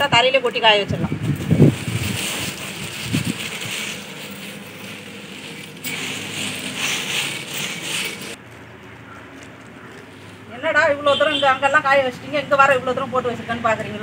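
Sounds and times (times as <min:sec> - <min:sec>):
dried chillies rustling: 0:01.1 - 0:10.9.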